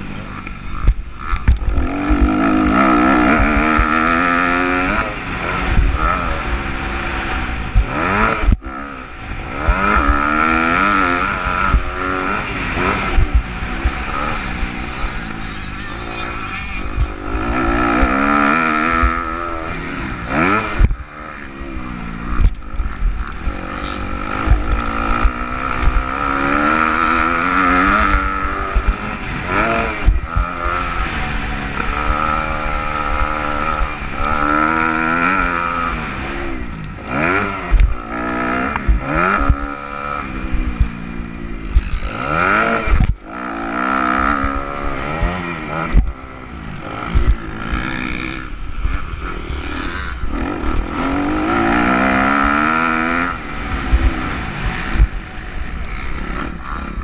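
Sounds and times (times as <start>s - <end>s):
motocross bike engine revving: 0.0s - 57.0s
thumps on microphone: 45.9s - 46.2s, 47.1s - 47.4s.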